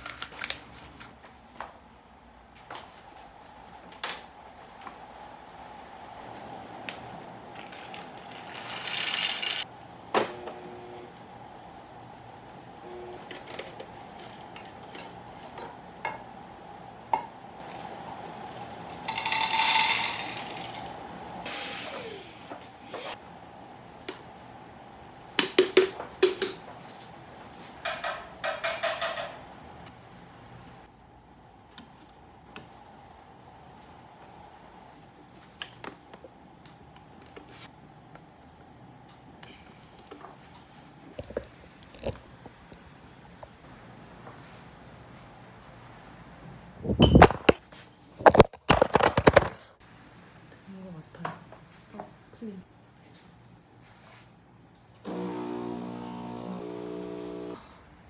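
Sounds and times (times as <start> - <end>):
coffee grinder grinding: 7.9 - 9.6, 18.6 - 21.9, 55.1 - 57.6.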